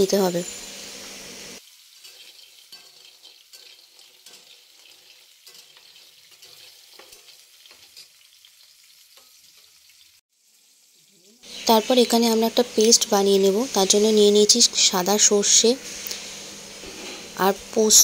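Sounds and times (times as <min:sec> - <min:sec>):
fish sizzling in oil: 0:00.0 - 0:18.0.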